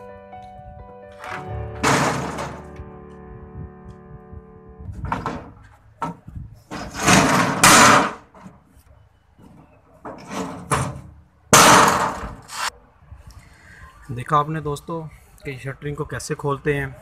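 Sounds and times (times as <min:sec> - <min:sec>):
metal plates clattering and scraping: 0:01.2 - 0:02.7, 0:05.0 - 0:08.5, 0:10.0 - 0:12.7.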